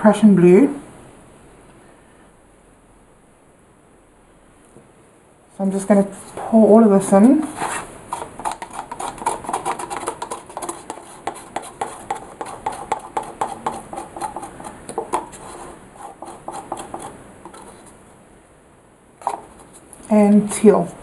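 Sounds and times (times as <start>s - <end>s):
paper cups clicking and scraping: 7.4s - 18.0s, 19.2s - 20.1s.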